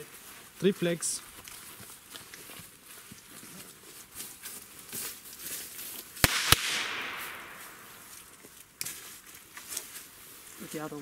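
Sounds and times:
firecracker bangs: 0:06.2 - 0:08.1
rolling echo: 0:06.2 - 0:08.2.

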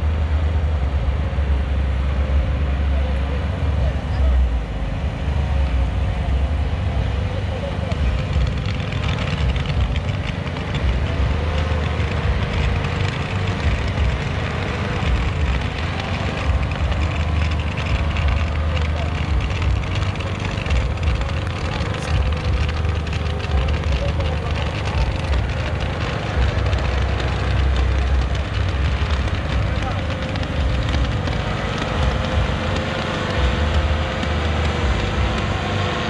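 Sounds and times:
low rumble: 0:00.0 - 0:36.0
people's voices: 0:00.0 - 0:36.0
fireworks crackling: 0:07.8 - 0:36.0.

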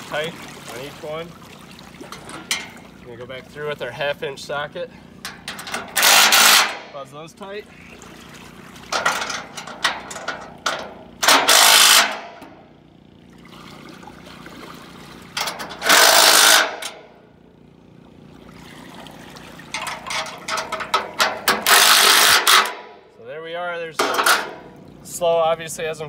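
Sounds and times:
impact driver hammering bolts: 0:05.4 - 0:06.8, 0:10.7 - 0:12.6, 0:15.4 - 0:17.0, 0:21.2 - 0:22.9
sharp knocks and clicks: 0:19.7 - 0:22.9.

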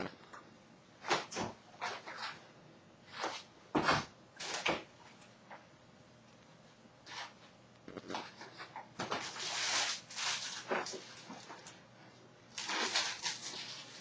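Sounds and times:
plastic crinkling: 0:07.9 - 0:11.8, 0:12.5 - 0:14.0.

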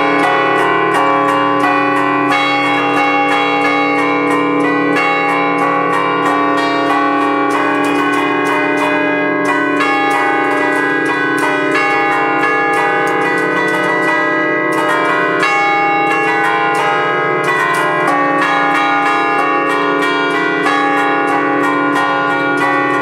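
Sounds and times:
church bells playing a tune: 0:00.0 - 0:23.0.

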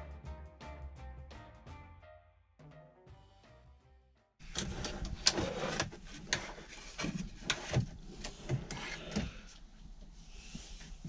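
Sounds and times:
frame sliding on metal runners: 0:04.4 - 0:09.5.

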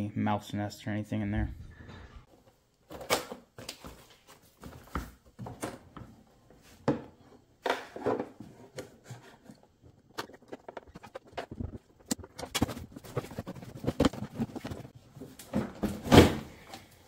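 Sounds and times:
knocks clicks and rubbing: 0:07.9 - 0:15.0.

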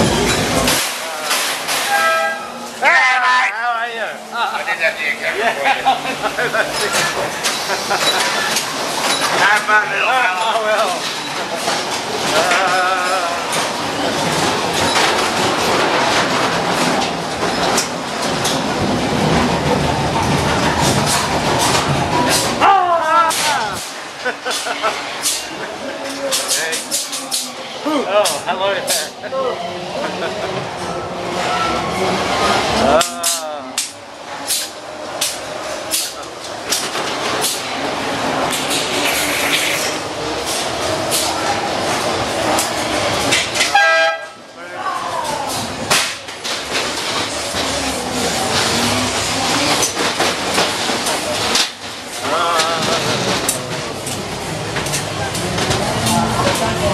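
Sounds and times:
ride car rattling on track: 0:00.0 - 0:03.2, 0:04.0 - 0:56.9.

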